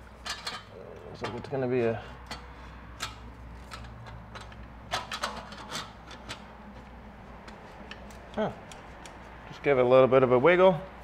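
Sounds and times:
metal sleeve scraping on pipe: 0.0 - 6.5.

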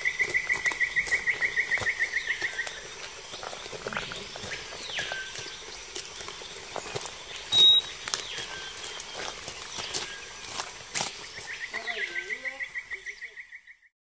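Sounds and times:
footsteps on a trail: 0.0 - 13.1
animal whistled call: 7.5 - 8.7
sharp high chirp: 7.5 - 8.9.

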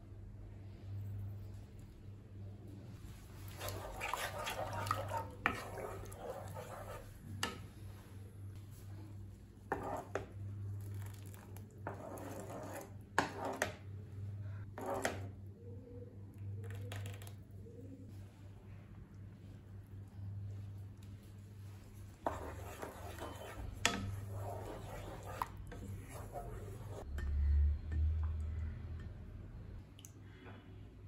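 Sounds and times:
low steady hum: 0.0 - 31.0
ladle scraping and sloshing soup: 3.0 - 8.1, 9.6 - 13.9, 20.5 - 27.3.

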